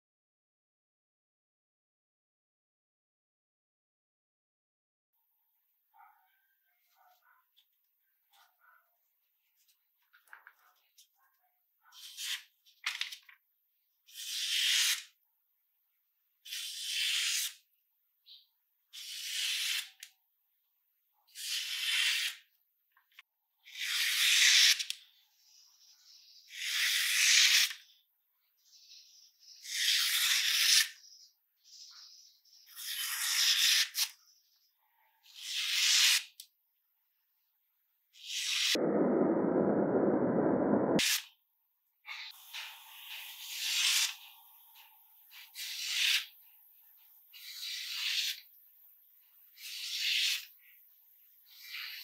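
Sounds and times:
knife slicing through paper: 21.4 - 22.4.

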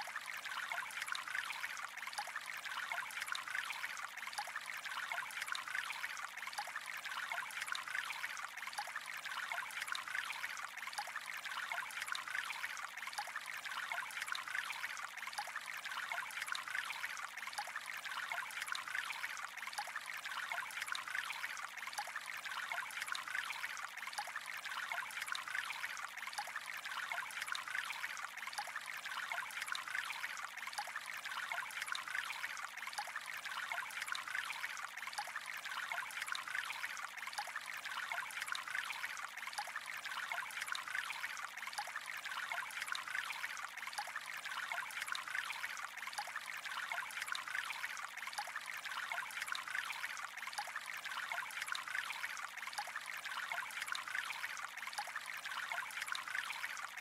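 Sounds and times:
water trickling: 0.0 - 57.0.

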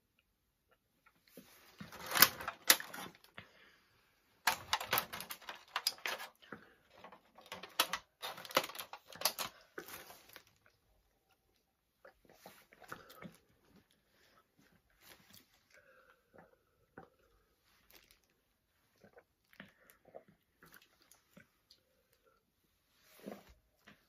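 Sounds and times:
plastic packaging crinkling: 1.4 - 3.4, 4.4 - 10.8, 17.9 - 18.3.

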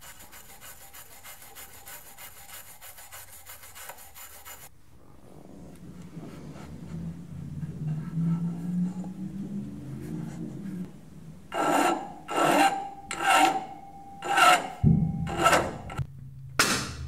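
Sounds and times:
hacksaw cutting steel: 11.5 - 16.0.

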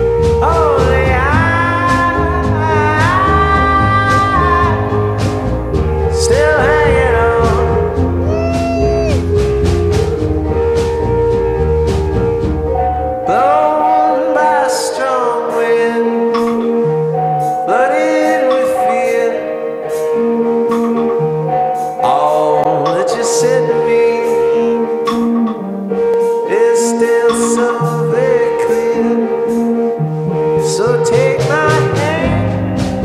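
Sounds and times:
song with steady beat: 0.0 - 33.0.

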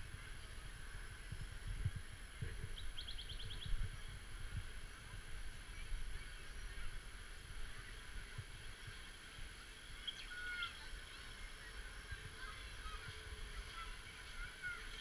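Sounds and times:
wind rumble on microphone: 0.0 - 15.0
water rushing over a weir: 3.8 - 15.0.

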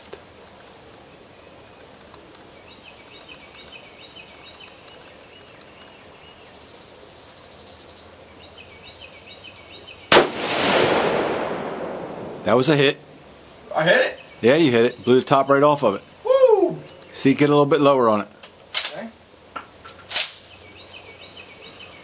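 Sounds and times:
rifle shot: 10.1 - 12.5
rolling echo: 10.1 - 12.8.

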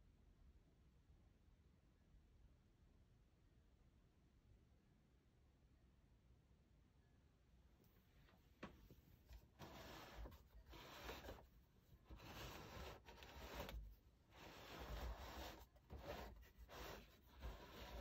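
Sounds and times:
hand rubbing plastic lamp: 8.6 - 18.0.

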